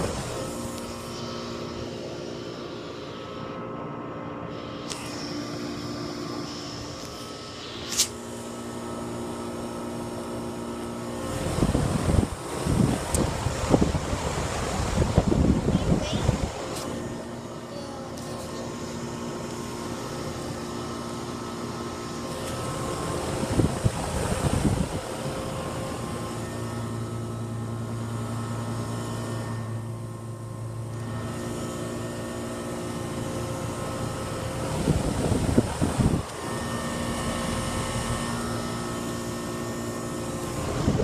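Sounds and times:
heat pump electrical hum: 0:00.0 - 0:41.0
wind buffeting microphone: 0:11.3 - 0:16.7, 0:23.2 - 0:25.4, 0:34.6 - 0:36.3, 0:40.6 - 0:41.0.

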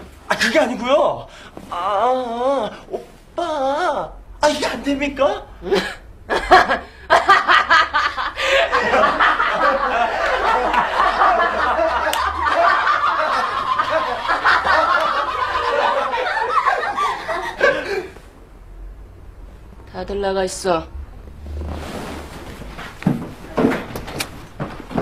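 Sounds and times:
men and women laughing: 0:05.6 - 0:18.2.

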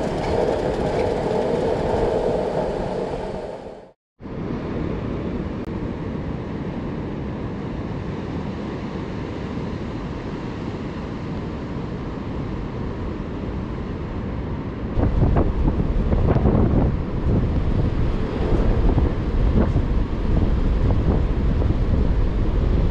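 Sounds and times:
wind buffeting microphone: 0:00.0 - 0:06.7, 0:12.0 - 0:22.9.

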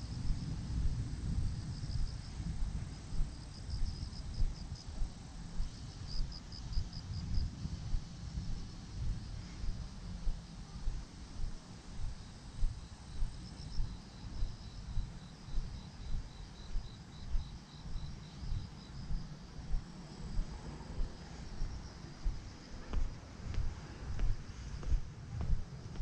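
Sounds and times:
crickets chirping: 0:00.0 - 0:26.0
higher cricket chirping: 0:00.0 - 0:26.0
footsteps on path: 0:21.6 - 0:26.0.

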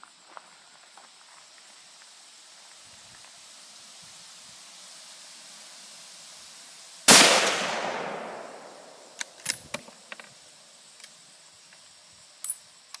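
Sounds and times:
rifle shot echo: 0:07.1 - 0:09.3.

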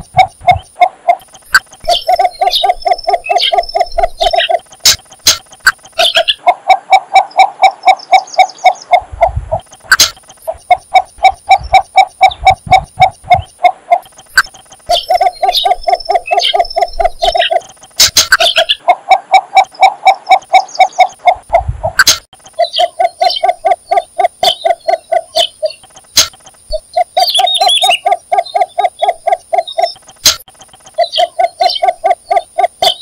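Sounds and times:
steady high-pitched whine: 0:00.0 - 0:06.4
bittern clucking call: 0:00.0 - 0:33.0
small birds chirping: 0:00.0 - 0:33.0.

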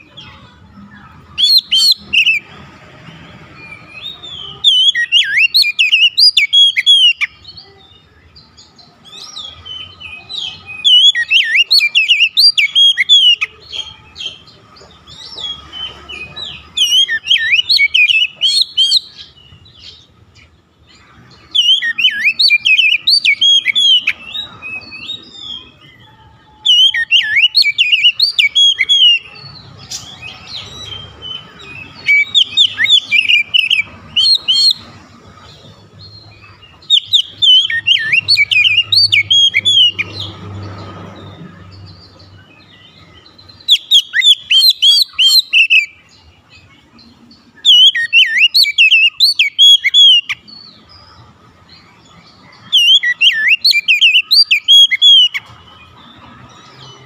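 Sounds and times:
bird singing whistled phrases: 0:03.7 - 0:07.4, 0:09.1 - 0:13.5, 0:16.2 - 0:19.3, 0:21.4 - 0:34.8, 0:36.8 - 0:40.1, 0:43.6 - 0:46.1, 0:47.6 - 0:50.5, 0:52.7 - 0:55.5.

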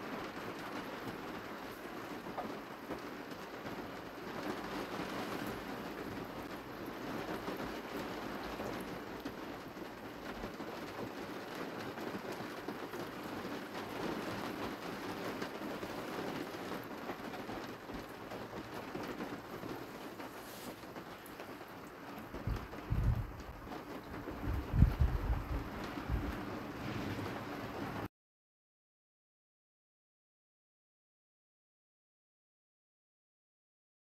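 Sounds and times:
rain falling: 0:00.0 - 0:28.1
low thumps: 0:22.5 - 0:23.4.

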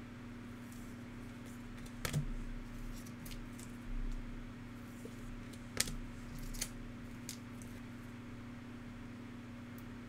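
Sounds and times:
low electrical hum: 0:00.0 - 0:10.0
cards being flipped through: 0:04.9 - 0:07.8.

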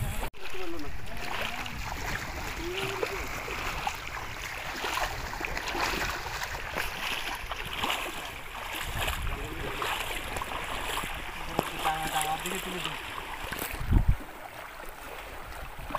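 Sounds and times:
wind rumble on microphone: 0:00.0 - 0:07.0, 0:08.7 - 0:11.6, 0:13.5 - 0:14.4
water sloshing around legs: 0:00.0 - 0:15.9.

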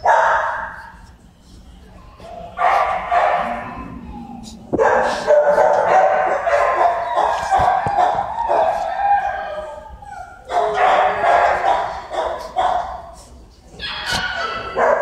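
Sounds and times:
dog giving drawn-out cries: 0:02.6 - 0:12.9, 0:13.8 - 0:15.0.

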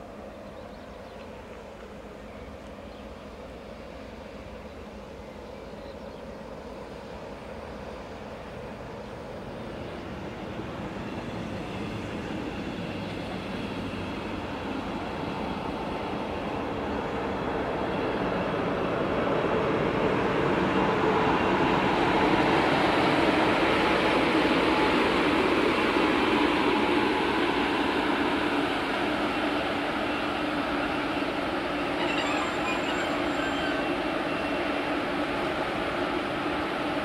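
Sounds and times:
diesel locomotive engine throttling up: 0:00.0 - 0:37.0.

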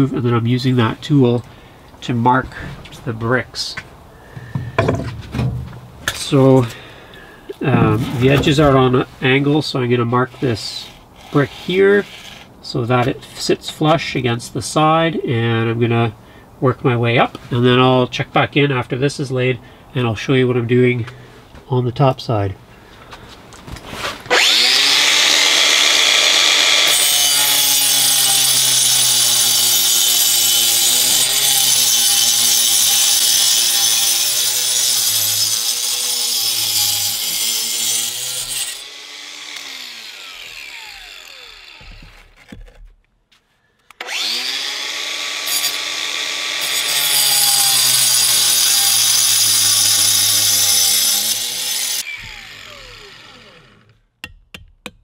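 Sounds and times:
angle grinder cutting brick: 0:07.5 - 0:09.1, 0:10.3 - 0:12.6, 0:24.3 - 0:43.0, 0:44.0 - 0:54.0
grinder winding down: 0:10.8 - 0:12.5, 0:24.3 - 0:42.2, 0:44.0 - 0:54.0.

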